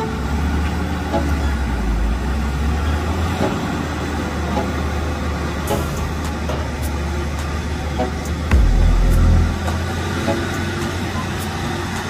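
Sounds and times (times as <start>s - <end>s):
diesel engine humming: 1.7s - 10.8s.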